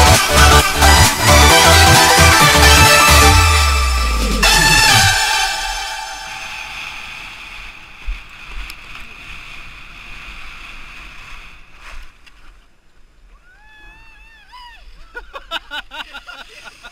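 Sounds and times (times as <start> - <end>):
skis scraping over packed snow: 7.8 - 12.7.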